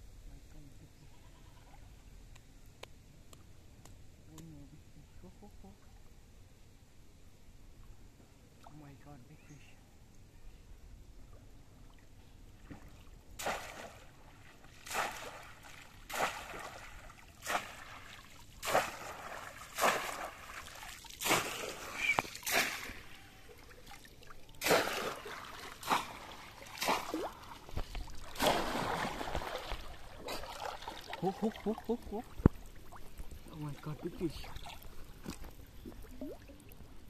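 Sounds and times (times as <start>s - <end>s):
water splashing: 12.6s - 37.0s.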